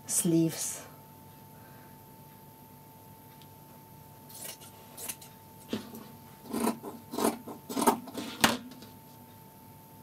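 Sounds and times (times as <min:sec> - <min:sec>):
scissors snipping fabric: 0:06.5 - 0:08.2.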